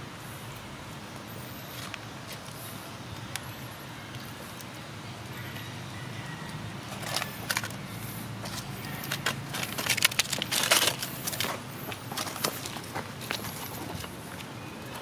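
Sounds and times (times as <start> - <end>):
monkeys scuffling over dry leaves: 6.9 - 15.0.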